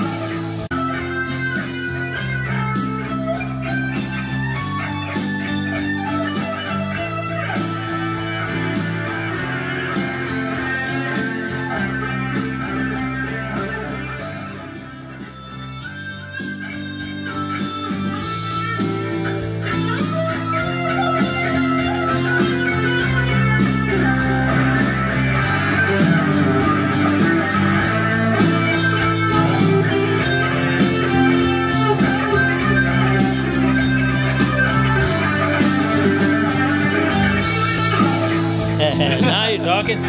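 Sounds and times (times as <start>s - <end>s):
electric guitar melody: 0.0s - 40.0s
steady beat: 0.0s - 40.0s
held bass notes: 20.6s - 40.0s.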